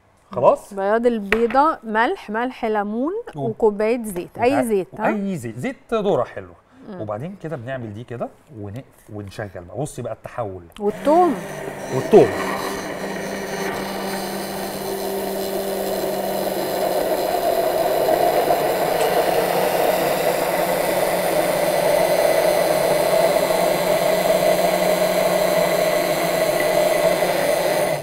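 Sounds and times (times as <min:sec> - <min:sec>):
immersion blender running: 0:10.9 - 0:28.0.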